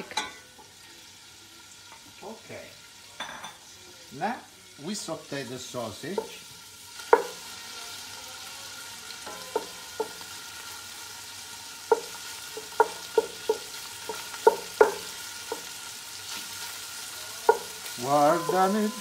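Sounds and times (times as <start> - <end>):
sausage sizzling in a pot: 0.0 - 19.0
spoon knocking against pot: 11.9 - 15.7, 17.4 - 19.0.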